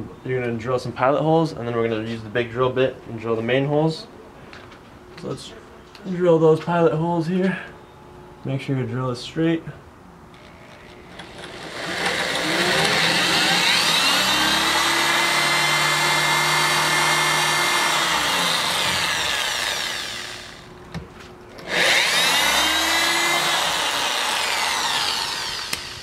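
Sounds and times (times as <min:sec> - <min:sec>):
electric drill boring into wall: 0:10.4 - 0:20.7, 0:21.6 - 0:26.0.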